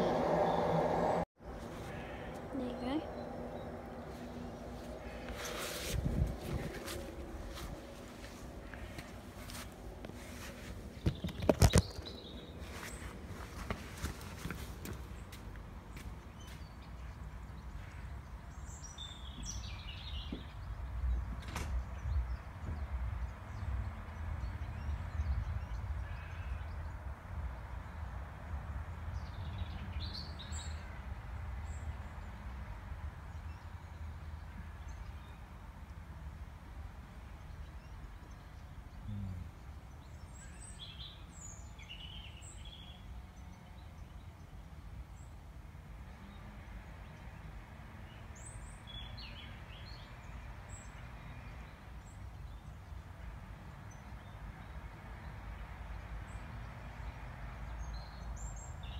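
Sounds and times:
low rumble: 0.0s - 1.3s
small birds chirping: 1.4s - 27.1s, 33.1s - 45.4s.

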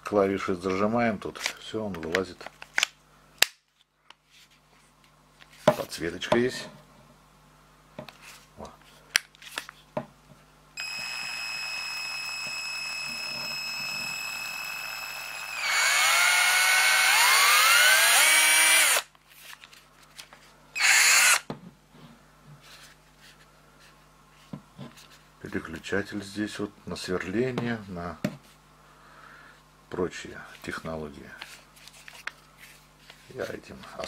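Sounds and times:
cordless drill motor whining: 10.8s - 19.1s, 20.8s - 21.5s.

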